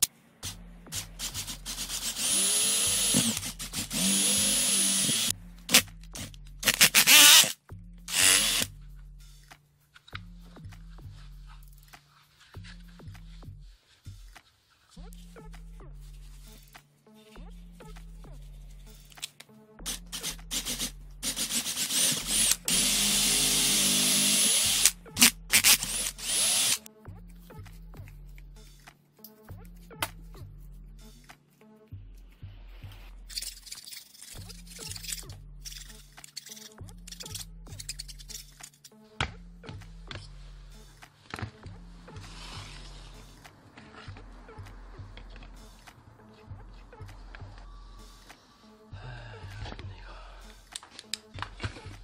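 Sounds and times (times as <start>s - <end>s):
cordless drill boring through plastic: 1.2s - 5.8s, 6.6s - 8.7s, 19.9s - 26.8s.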